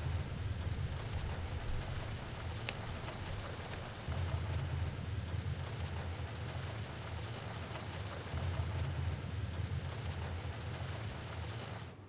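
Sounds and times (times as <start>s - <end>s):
vehicle cabin rumble and hiss: 0.0s - 4.1s.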